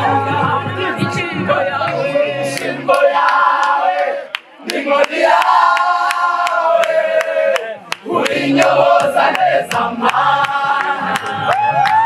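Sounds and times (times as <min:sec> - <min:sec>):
group singing in chorus: 0:00.0 - 0:12.0
steady hand-clapping: 0:02.5 - 0:12.0.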